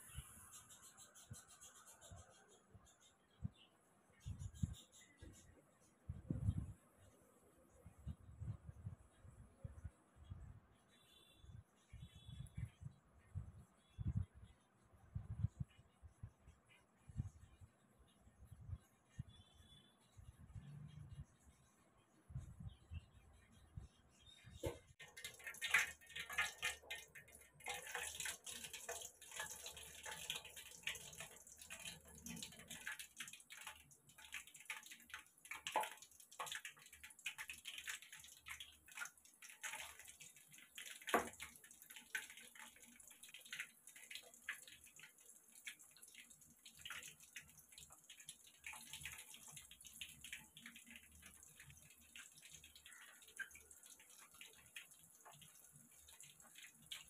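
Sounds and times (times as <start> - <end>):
food deep-frying in hot oil: 24.3 - 57.0.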